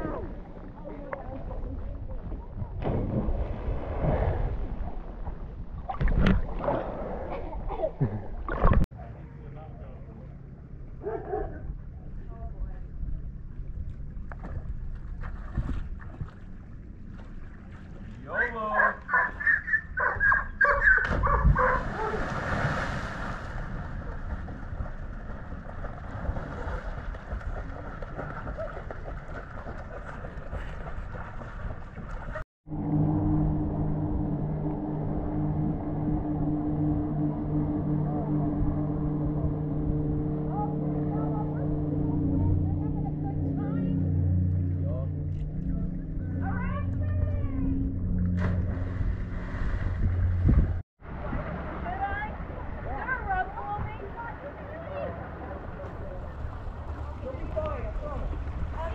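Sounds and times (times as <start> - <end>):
water sloshing and lapping: 0.0 - 8.9, 11.0 - 32.4, 39.2 - 58.9
body splashing into water: 21.0 - 32.4
wind on microphone: 45.6 - 54.2.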